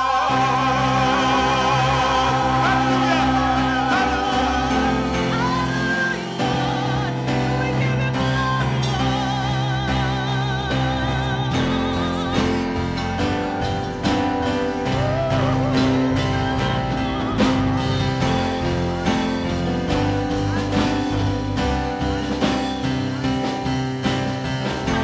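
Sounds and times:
live gospel band playing: 0:00.0 - 0:25.0
person singing: 0:00.0 - 0:25.0.

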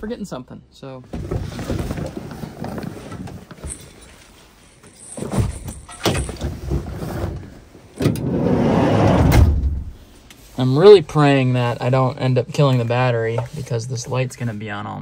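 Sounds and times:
bags rustling and bumping: 0:01.1 - 0:07.7.

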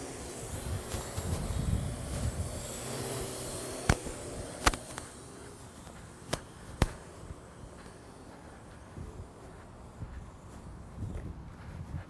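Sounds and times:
wind buffeting microphone: 0:00.0 - 0:04.9, 0:08.6 - 0:12.0
drone rotors whirring: 0:00.0 - 0:12.0
sharp clicks: 0:02.0 - 0:05.2, 0:05.8 - 0:07.0.

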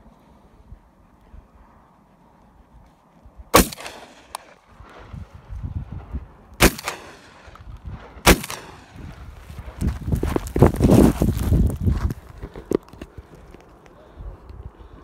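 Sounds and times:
gunshots with echo: 0:03.6 - 0:04.6, 0:06.6 - 0:09.1.

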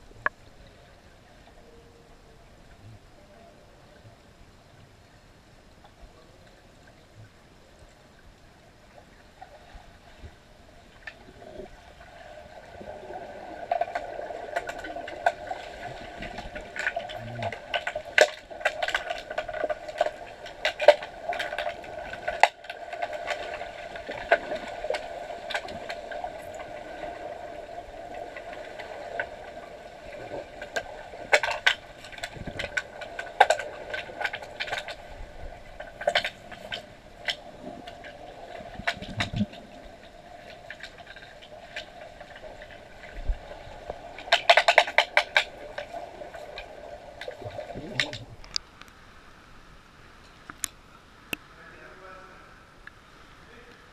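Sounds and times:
steady underwater hum: 0:00.0 - 0:53.9
underwater clicks of hockey sticks: 0:43.1 - 0:49.0.

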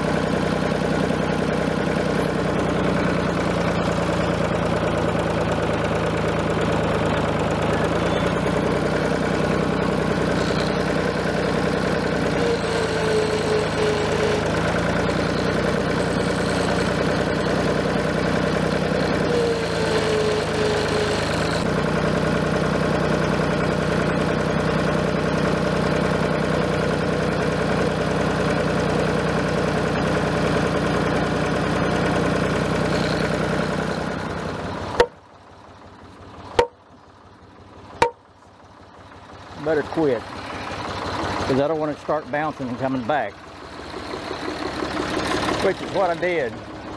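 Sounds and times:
tractor engine running: 0:00.0 - 0:46.9.

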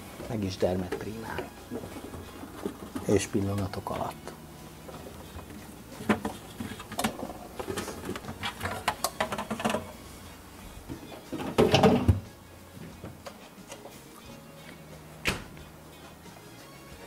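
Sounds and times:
plastic moulds clattering: 0:04.9 - 0:10.0, 0:10.9 - 0:12.3.

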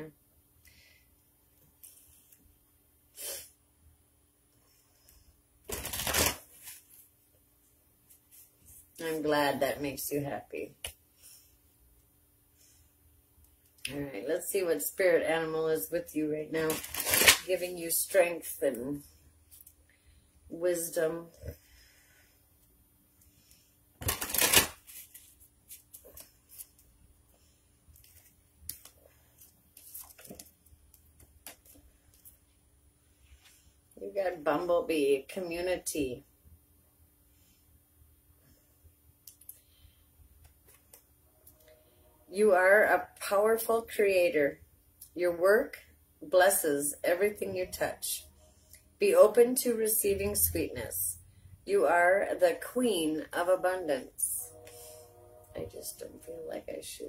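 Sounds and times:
cards being shuffled: 0:05.7 - 0:07.0, 0:16.7 - 0:17.5, 0:24.0 - 0:26.9, 0:28.0 - 0:32.4.

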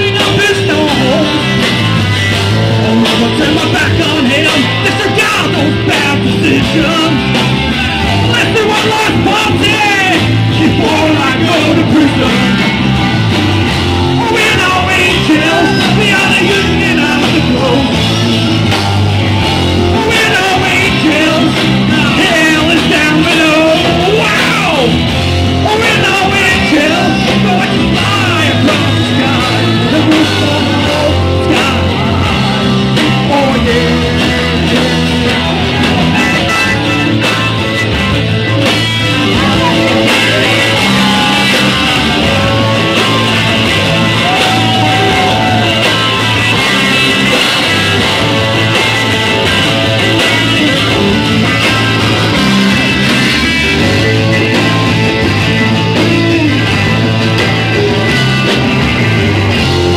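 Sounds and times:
lead singer's vocals: 0:00.0 - 0:01.6, 0:02.5 - 0:07.4, 0:08.0 - 0:12.8, 0:14.1 - 0:18.2, 0:19.8 - 0:25.0, 0:25.6 - 0:36.9, 0:39.1 - 0:52.1
live rock band playing: 0:00.0 - 0:59.9.

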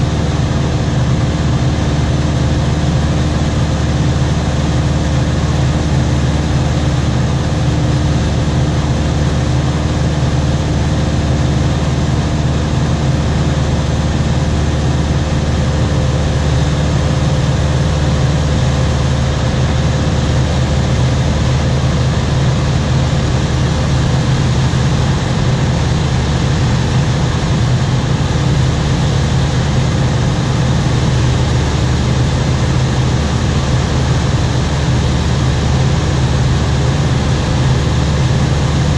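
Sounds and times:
propeller aircraft engine droning: 0:00.0 - 0:38.9.

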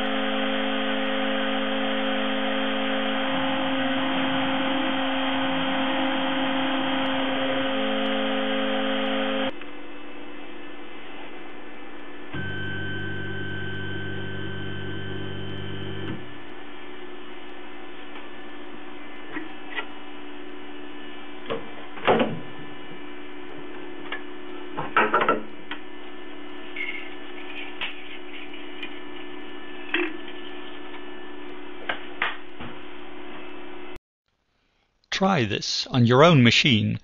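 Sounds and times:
electrical hum: 0:00.0 - 0:34.0.

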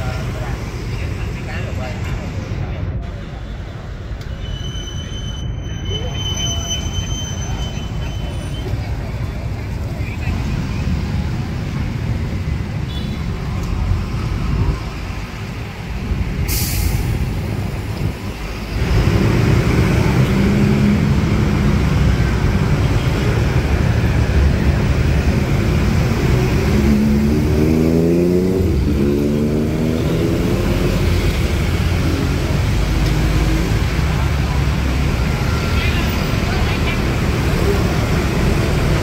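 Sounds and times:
street traffic rumble: 0:00.0 - 0:39.0
engine revving up: 0:25.7 - 0:34.0.

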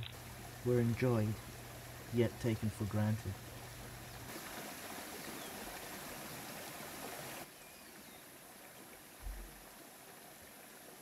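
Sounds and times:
rushing stream-like ambience: 0:00.0 - 0:11.0
soft low thump: 0:09.2 - 0:09.5.

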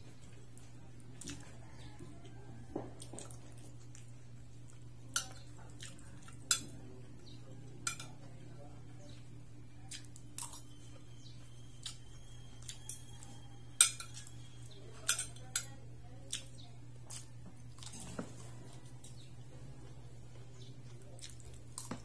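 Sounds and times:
cutlery clinking on a plate: 0:06.3 - 0:06.8, 0:07.8 - 0:08.3, 0:12.8 - 0:15.7.

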